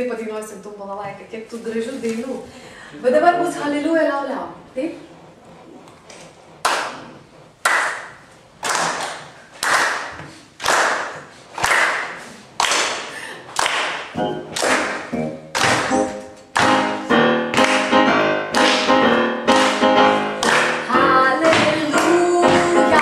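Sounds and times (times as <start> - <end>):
hands clapping a beat: 6.6 - 23.0
digital piano chords: 14.0 - 23.0.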